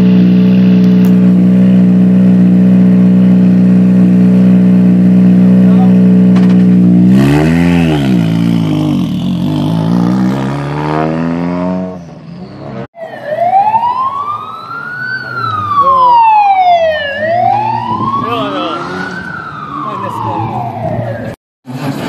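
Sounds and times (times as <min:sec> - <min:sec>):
rally car engine revving: 0:00.0 - 0:12.9
siren wailing: 0:13.0 - 0:21.4.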